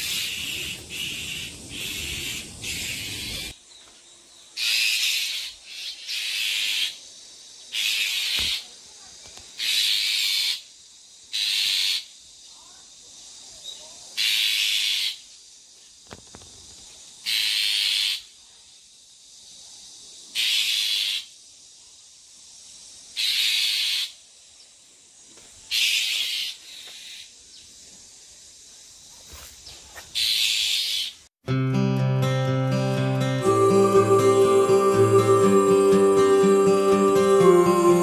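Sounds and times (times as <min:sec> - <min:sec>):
shrike harsh hissing rasps: 0:00.0 - 0:03.6, 0:04.6 - 0:08.8, 0:09.6 - 0:15.6, 0:17.1 - 0:24.5, 0:25.7 - 0:27.4, 0:33.3 - 0:38.0.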